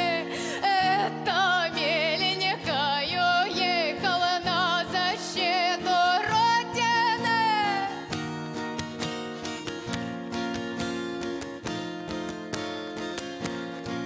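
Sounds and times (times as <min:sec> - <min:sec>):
woman singing with vibrato: 0:00.0 - 0:08.2.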